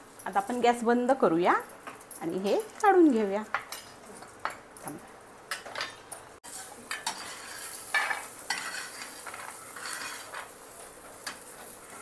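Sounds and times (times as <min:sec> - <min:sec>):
oil sizzling: 0:00.0 - 0:12.0
metal spatula scraping iron pan: 0:06.5 - 0:10.5.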